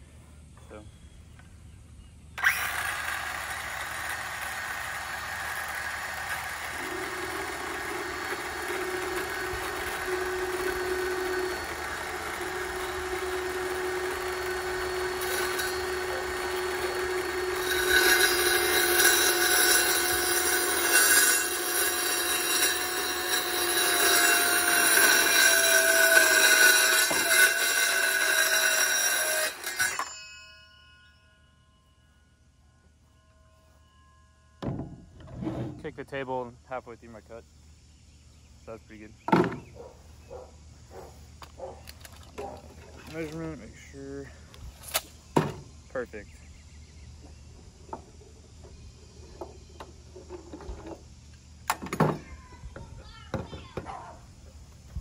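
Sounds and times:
circular saw cutting wood: 2.4 - 30.4.

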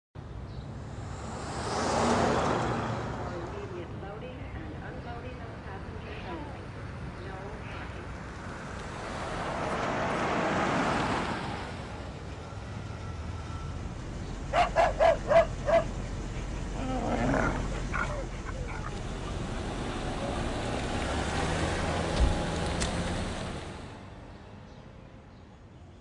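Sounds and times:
engine idling hum: 12.0 - 23.9
small dog barking: 14.5 - 15.9
dog yipping: 14.5 - 16.0
car pulling up: 15.2 - 23.9.

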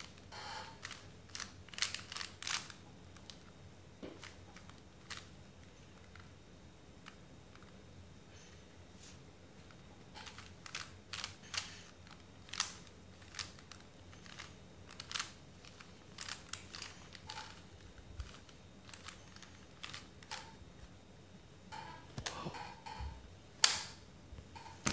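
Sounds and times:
puzzle cube plastic clicks: 0.0 - 3.4, 10.2 - 20.5.

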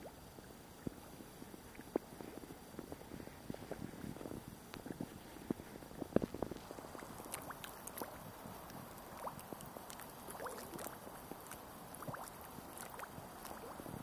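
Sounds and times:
small waves lapping against wall: 4.8 - 14.0.

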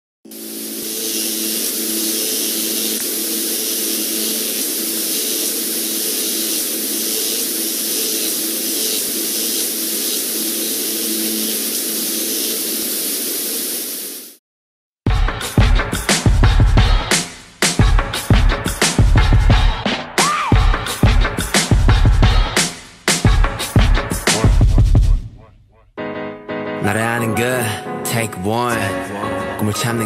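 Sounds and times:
electric static hiss: 0.3 - 14.4.

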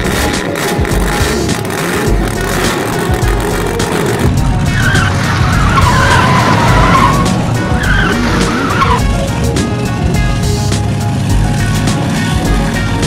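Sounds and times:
background music with steady beat: 0.0 - 13.0
cartoon tyre screech: 1.4 - 9.1.

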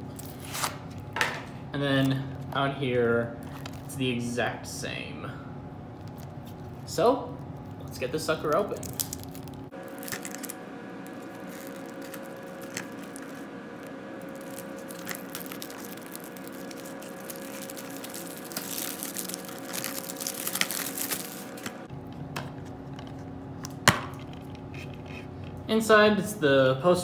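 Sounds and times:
plastic shrink-wrap tearing and crinkling: 3.4 - 3.9, 7.9 - 21.9.

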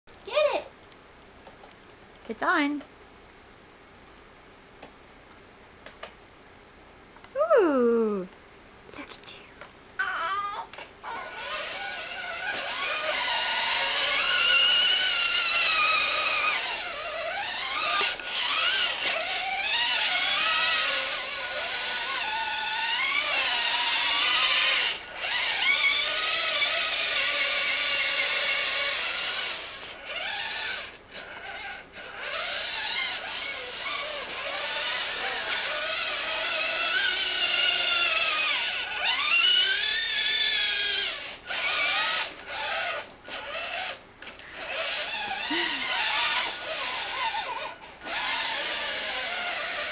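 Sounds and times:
electric motors whining: 10.7 - 49.9.

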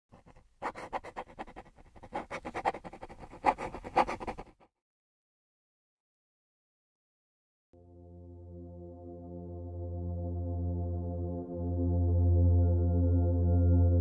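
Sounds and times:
brush scratching paper: 0.1 - 4.7.

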